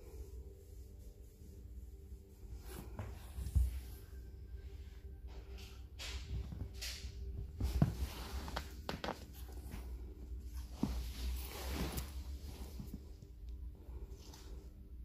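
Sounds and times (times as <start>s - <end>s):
cat rustling on sofa: 2.4s - 4.1s, 6.0s - 13.4s.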